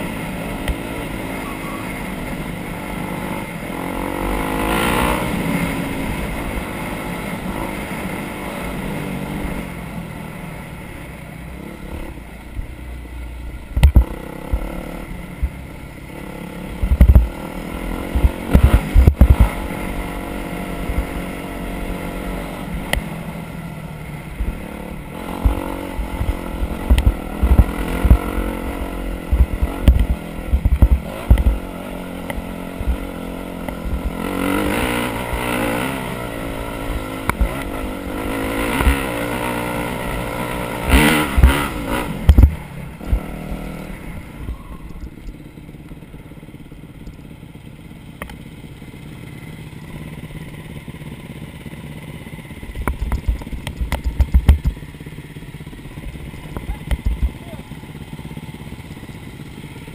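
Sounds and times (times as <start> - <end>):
off-road vehicle engine revving: 0.0 - 12.3, 13.7 - 46.7
knocks and clatter: 52.8 - 54.8.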